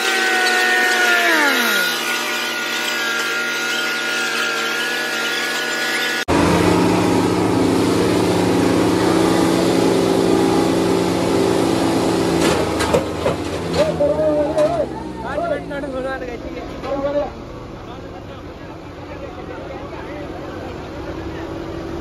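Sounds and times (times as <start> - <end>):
tractor diesel engine at high revs: 0.0 - 22.0
deeper tractor diesel engine: 6.3 - 22.0.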